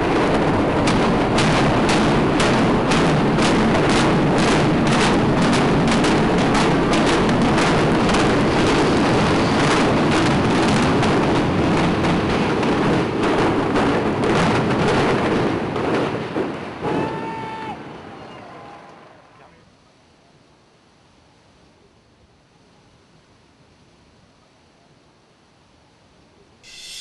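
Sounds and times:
explosive charges banging: 0.0s - 15.9s
building collapsing rumble: 0.0s - 17.0s.

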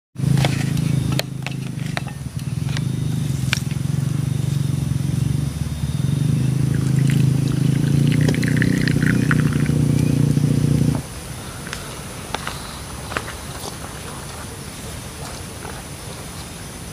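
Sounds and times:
loud steady low hum: 0.2s - 13.5s
drink pouring into a mug: 6.7s - 9.8s.

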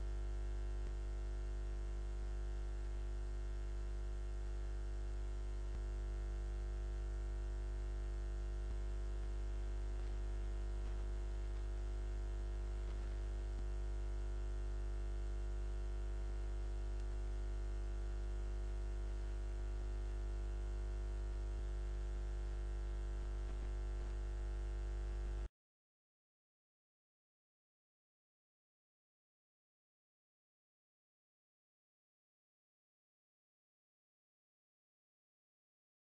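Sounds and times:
electrical hum and buzz: 0.0s - 25.5s.

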